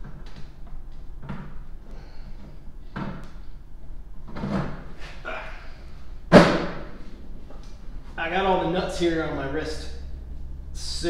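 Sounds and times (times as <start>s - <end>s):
loud thump: 6.3s - 7.0s.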